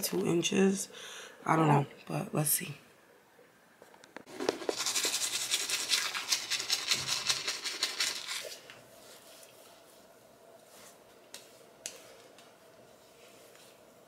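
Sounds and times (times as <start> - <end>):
toothbrush scrubbing teeth: 4.3 - 8.7.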